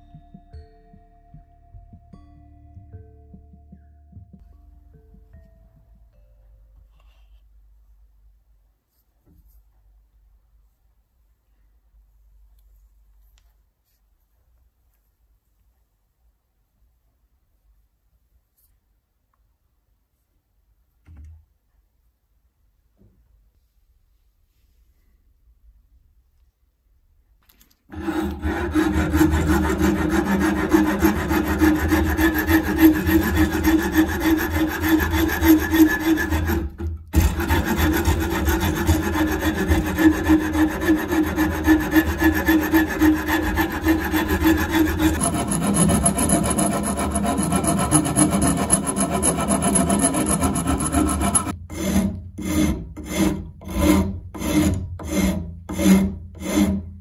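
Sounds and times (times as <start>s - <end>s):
wood rasp strokes: 27.9s - 57.0s.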